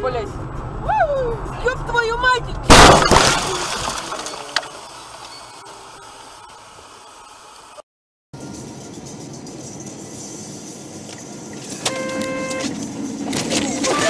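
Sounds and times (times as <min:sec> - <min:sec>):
crunching and rattling: 0:02.7 - 0:05.4
car crash: 0:02.7 - 0:06.3.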